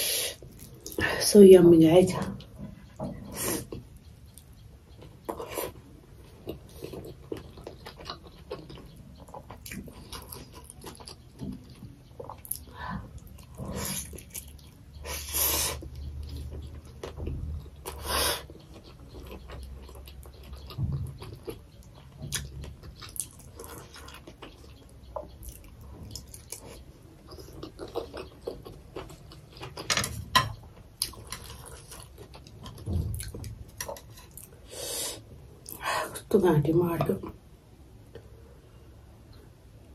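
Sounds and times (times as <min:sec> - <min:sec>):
wet chewing: 0:03.6 - 0:29.9.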